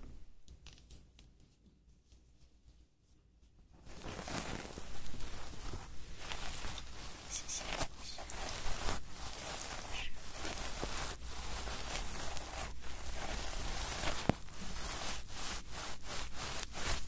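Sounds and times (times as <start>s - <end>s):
close-up rustling and scratching: 0.5s - 17.0s.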